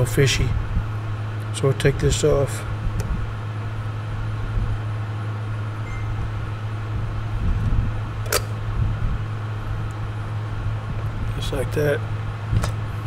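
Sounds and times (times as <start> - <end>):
steady low hum: 0.0 - 13.0
sharp click: 8.2 - 8.6.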